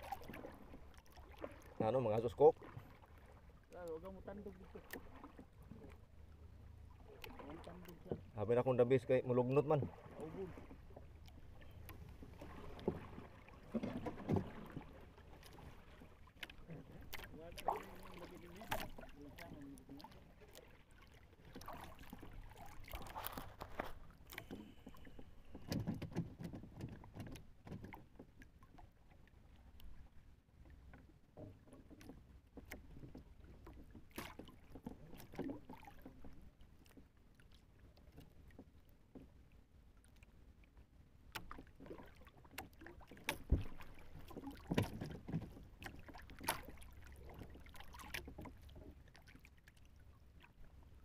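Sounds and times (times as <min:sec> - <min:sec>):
line knocking on wooden hull: 0:12.2 - 0:15.0, 0:25.5 - 0:28.4, 0:43.1 - 0:49.2.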